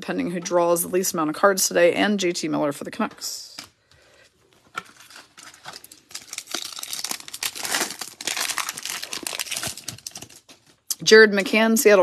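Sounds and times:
foil wrapper crinkling and tearing: 0:04.7 - 0:10.8.

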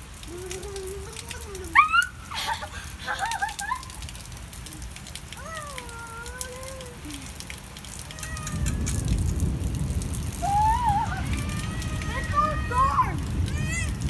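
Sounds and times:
steady rain on grass: 0:00.0 - 0:14.0
child's high-pitched call: 0:08.1 - 0:09.0, 0:10.4 - 0:14.0.

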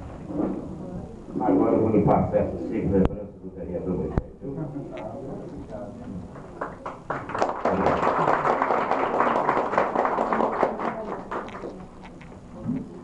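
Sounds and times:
audience applauding: 0:06.3 - 0:11.8.

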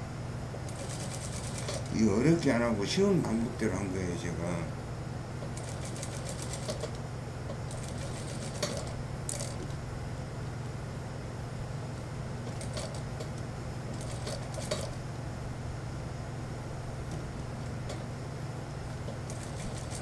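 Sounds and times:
steady low hum: 0:00.0 - 0:20.0
sewing machine stitching: 0:00.7 - 0:02.0, 0:05.6 - 0:07.0, 0:07.7 - 0:09.6, 0:13.9 - 0:14.9, 0:19.3 - 0:20.0.

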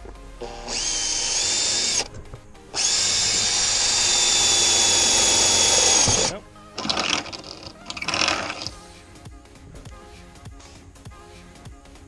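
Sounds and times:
cordless drill whining: 0:00.4 - 0:02.1, 0:02.8 - 0:08.8.

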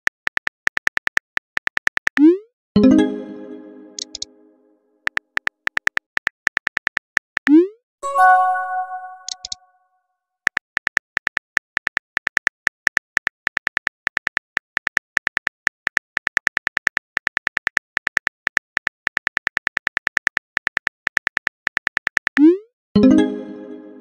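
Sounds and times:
keyboard typing clicks: 0:03.9 - 0:04.3, 0:08.2 - 0:09.6.

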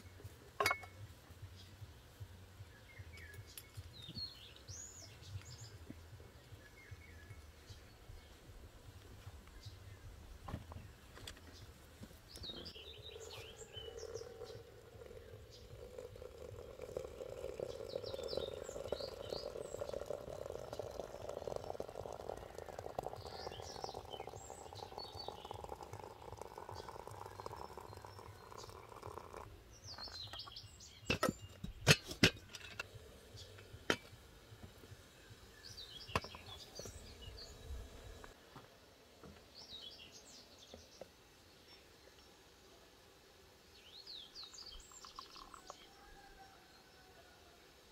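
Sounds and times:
small birds chirping: 0:00.0 - 0:38.4, 0:39.3 - 0:42.9, 0:43.7 - 0:47.0
water pouring into teapot: 0:12.7 - 0:30.5, 0:44.4 - 0:46.2.

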